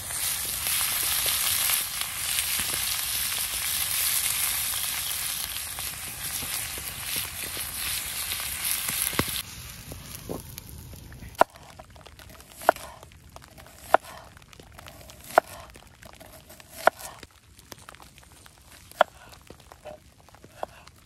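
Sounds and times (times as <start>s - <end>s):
meat sizzling in a frying pan: 0.0s - 10.9s
knife chopping on cutting board: 15.2s - 15.6s, 16.5s - 17.1s.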